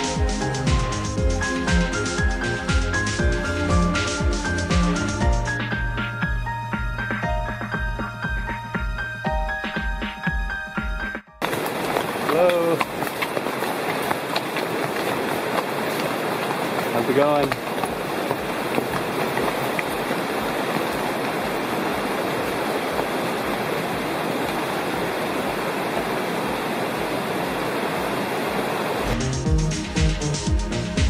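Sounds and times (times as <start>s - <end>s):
creek water rushing: 0.0s - 7.9s, 11.4s - 31.0s
music with a beat: 0.0s - 11.4s, 29.1s - 31.0s.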